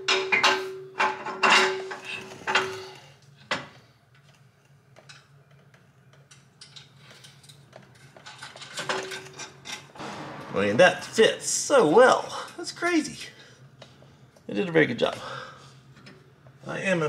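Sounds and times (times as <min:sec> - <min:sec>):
metal plate clanking: 0:09.8 - 0:12.4
steady hum: 0:09.8 - 0:17.0
sharp knock: 0:10.0 - 0:11.5.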